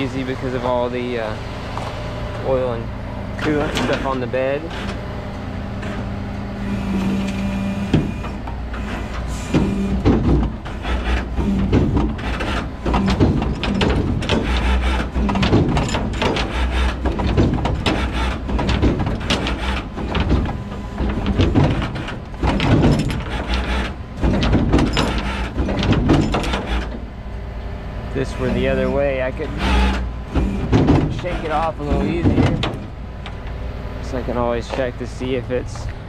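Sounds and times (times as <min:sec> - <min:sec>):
tow truck engine hum: 0:00.0 - 0:36.0
metallic clunks and knocks: 0:03.4 - 0:05.0, 0:05.8 - 0:27.1, 0:28.2 - 0:33.6.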